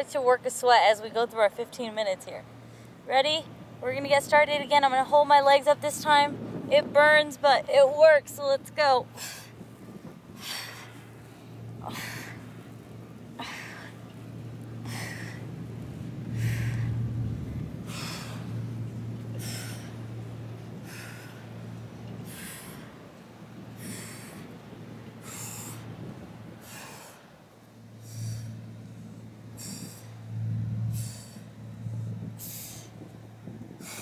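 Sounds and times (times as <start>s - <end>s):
low rumble: 8.4s - 34.0s.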